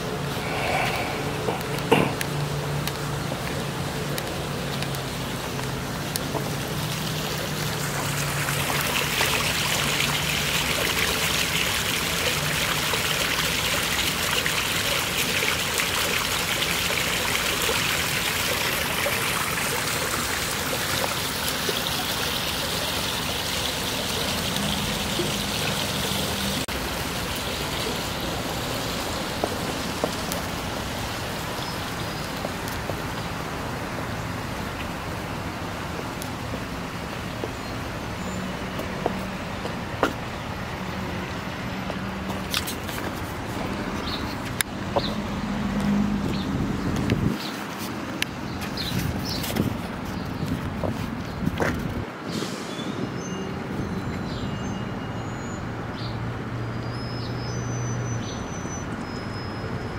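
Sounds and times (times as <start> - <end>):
water splashing and trickling: 0.0 - 59.9.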